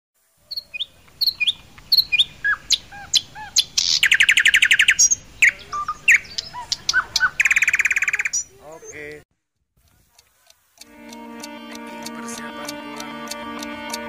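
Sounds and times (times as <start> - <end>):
bird chirping: 0.4 - 9.2
bird trill: 0.5 - 9.0.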